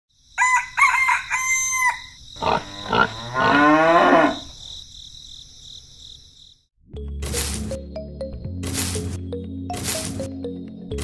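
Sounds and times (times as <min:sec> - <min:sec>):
rooster crowing: 0:00.4 - 0:02.2.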